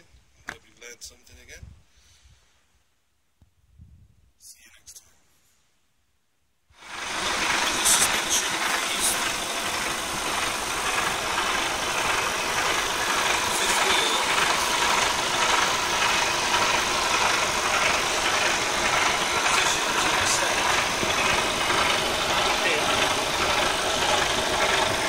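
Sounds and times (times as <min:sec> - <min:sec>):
diesel truck engine idling: 0:06.8 - 0:25.0.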